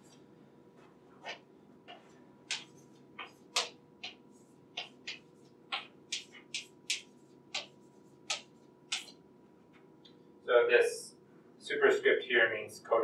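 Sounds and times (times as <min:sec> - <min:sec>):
chalk tapping and scraping on blackboard: 0:01.2 - 0:09.2.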